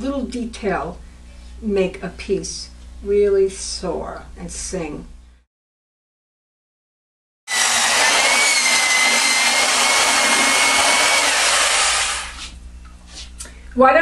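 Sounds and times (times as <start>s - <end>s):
glaze mixer motor whine: 7.5s - 12.5s.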